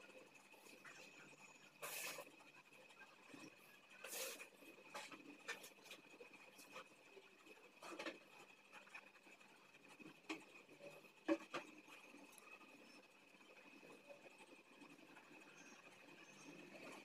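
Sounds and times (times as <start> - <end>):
marker pen scratching on paper: 3.4 - 7.0.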